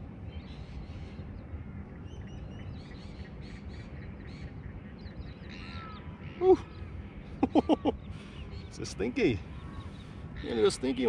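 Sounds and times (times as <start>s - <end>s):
low steady rumble: 0.0s - 11.0s
faint bird chirps: 0.2s - 11.0s
loud harsh bird call: 5.4s - 8.7s, 9.3s - 11.0s.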